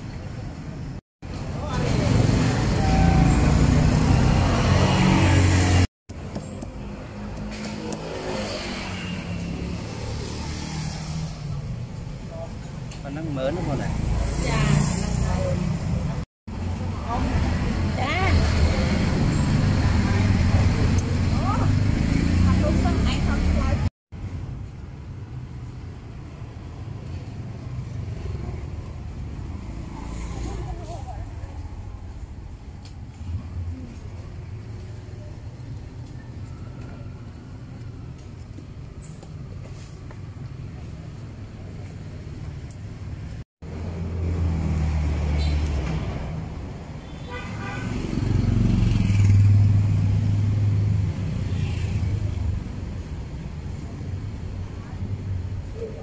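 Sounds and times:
street traffic rumble: 0.0 - 56.0
vehicle engine passing: 1.6 - 5.9, 17.1 - 23.9, 47.9 - 52.7.

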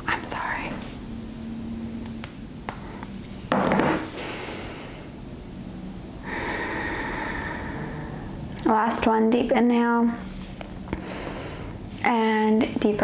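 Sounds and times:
woman breathing through nose: 6.2 - 8.4, 10.9 - 11.9.

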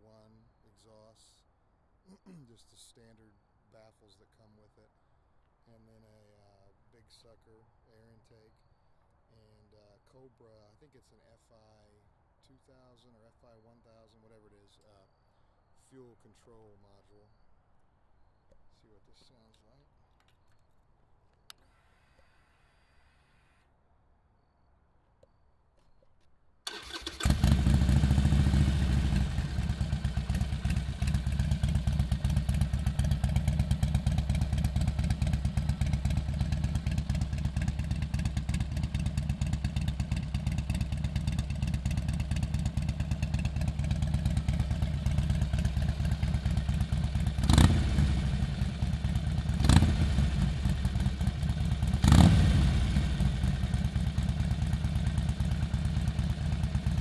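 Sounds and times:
motorcycle engine idling: 26.7 - 57.0.

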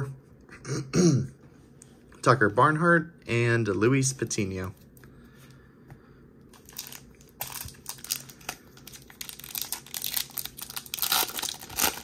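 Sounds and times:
foil wrapper tearing and crinkling: 6.6 - 12.0.

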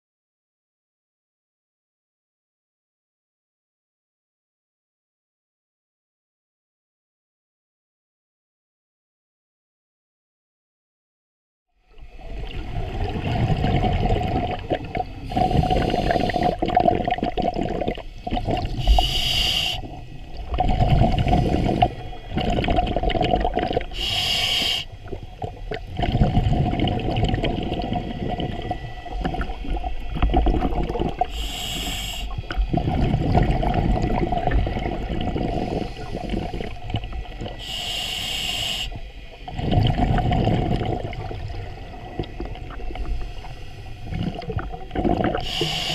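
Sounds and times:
bubbling exhalation: 12.5 - 24.2, 25.1 - 37.6, 39.5 - 43.2, 44.1 - 45.9
regulator inhalation hiss: 15.1 - 16.7, 18.2 - 20.5, 21.1 - 22.4, 23.8 - 25.2, 31.1 - 32.8, 35.4 - 39.4, 42.9 - 44.5, 45.4 - 45.9.

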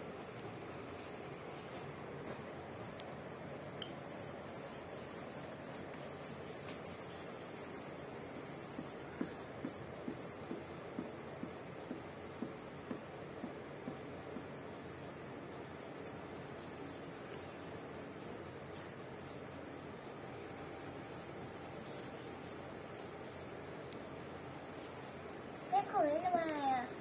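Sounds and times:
marker scribbling on whiteboard: 3.4 - 23.9
marker tapping on board: 4.9 - 14.9.

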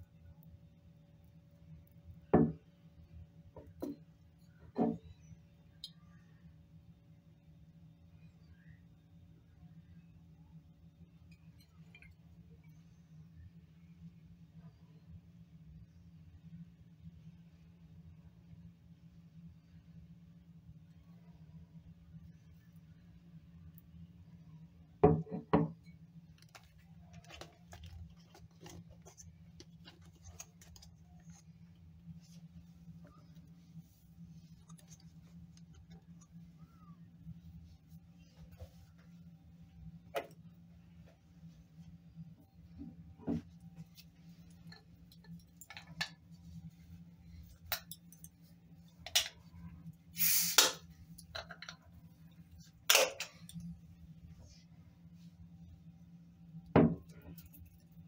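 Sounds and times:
low steady hum: 0.0 - 58.0
glass bottle clunking on countertop: 2.4 - 2.6, 25.0 - 25.8
bottle cap opening hiss: 50.2 - 50.8.

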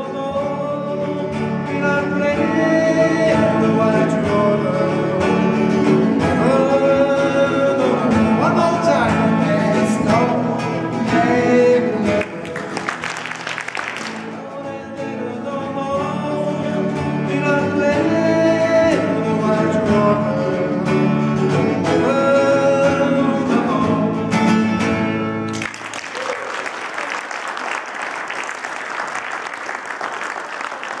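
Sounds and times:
man singing: 0.0 - 24.7
acoustic guitar strumming: 0.0 - 25.9
applause: 12.2 - 14.4, 25.5 - 31.0.

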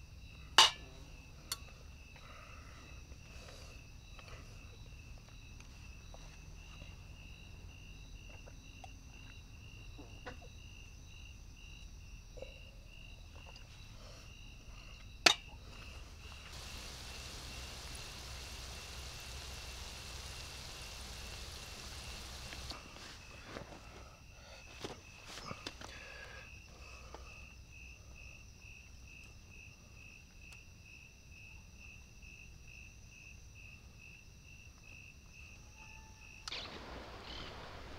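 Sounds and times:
night insects trilling: 0.0 - 37.9
soft even hiss: 15.7 - 23.9, 36.5 - 37.9.

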